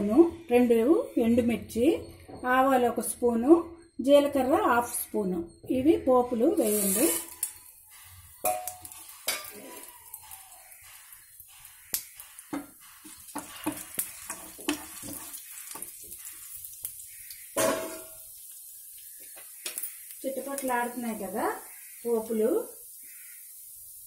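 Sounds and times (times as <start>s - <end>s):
spices sizzling and popping in oil: 1.7s - 24.0s.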